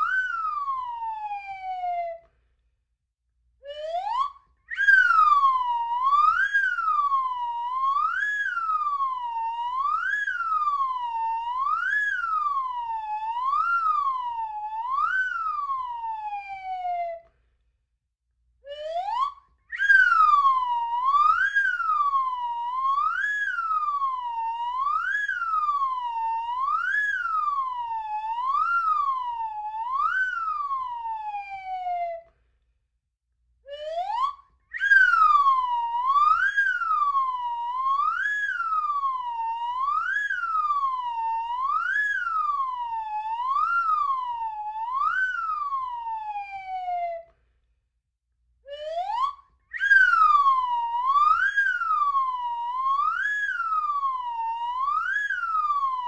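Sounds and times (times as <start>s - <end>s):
slide whistle swooping: 4.7s - 7.0s, 19.7s - 24.0s, 33.7s - 39.0s, 48.8s - 55.8s.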